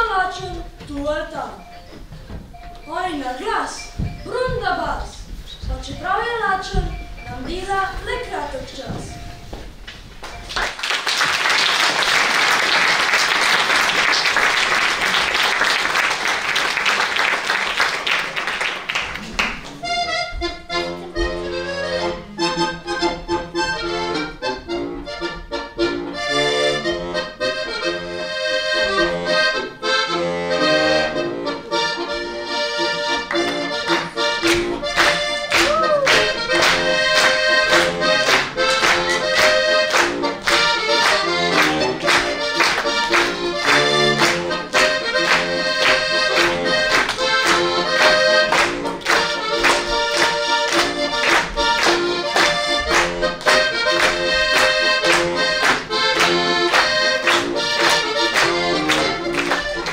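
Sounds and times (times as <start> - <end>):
audience applauding: 10.2 - 19.8, 33.3 - 59.9
solo accordion playing: 19.8 - 59.9.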